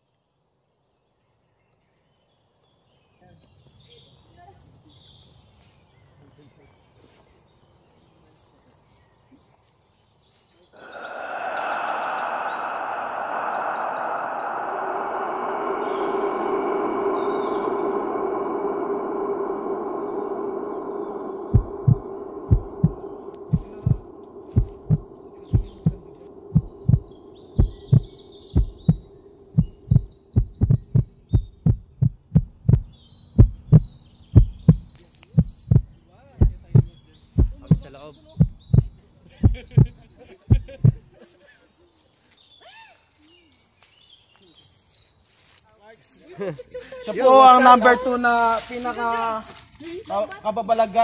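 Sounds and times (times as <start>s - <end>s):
birds chirping: 10.3s - 41.0s
loud steady rushing noise: 10.8s - 33.8s
faint low hum: 10.8s - 41.0s
heartbeat thumps: 12.7s - 41.0s.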